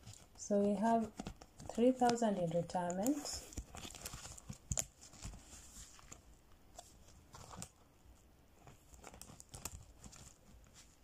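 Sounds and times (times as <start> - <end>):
paper envelopes rustling: 0.0 - 7.8, 8.6 - 11.0.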